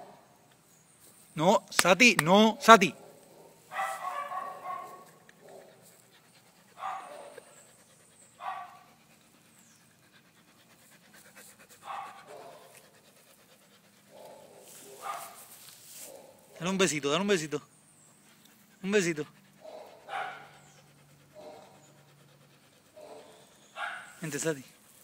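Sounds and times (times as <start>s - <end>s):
dog panting: 3.9s - 15.4s, 18.1s - 25.0s.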